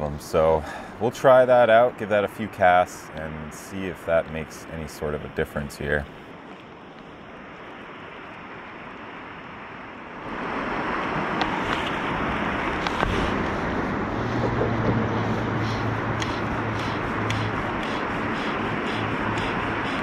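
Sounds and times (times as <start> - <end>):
river water flowing: 0.0 - 20.0
wind on microphone: 10.6 - 20.0.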